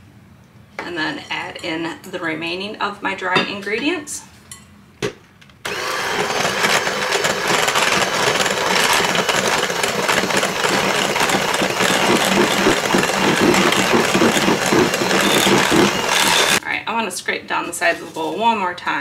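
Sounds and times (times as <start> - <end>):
beaters churning batter: 5.7 - 16.6
electric hand mixer running: 5.7 - 16.6.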